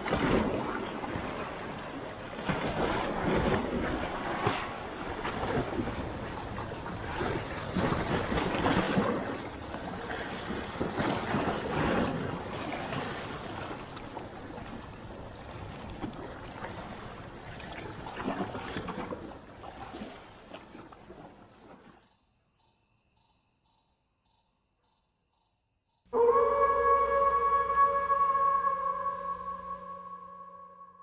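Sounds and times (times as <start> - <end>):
crickets trilling: 11.3 - 30.0.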